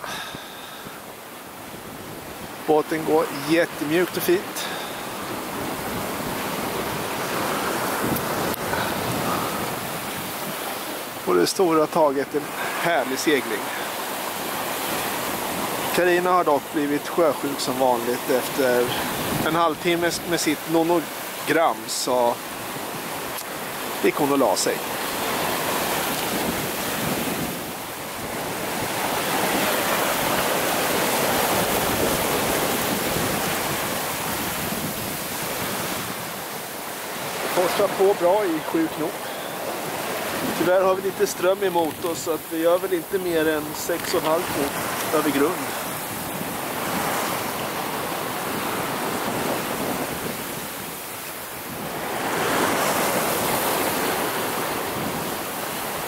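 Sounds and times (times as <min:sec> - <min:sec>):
hull rushing through water: 0:00.0 - 0:56.0
wind on microphone: 0:04.8 - 0:11.1, 0:18.9 - 0:19.5, 0:25.2 - 0:37.6.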